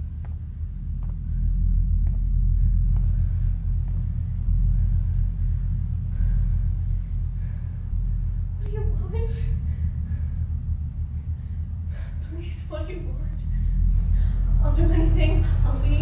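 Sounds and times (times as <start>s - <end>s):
footsteps on tiled floor: 0.0s - 4.2s
deep rumbling drone: 0.0s - 16.0s.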